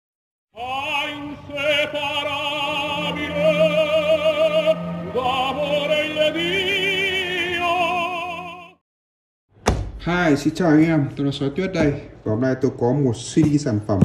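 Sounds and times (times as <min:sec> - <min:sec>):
operatic voice singing: 0:00.5 - 0:08.8.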